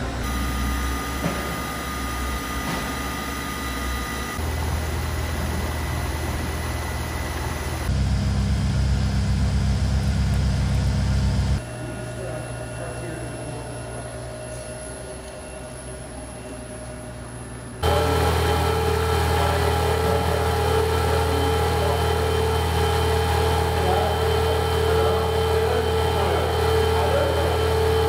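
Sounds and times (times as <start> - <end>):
machinery humming: 0.0 - 28.0.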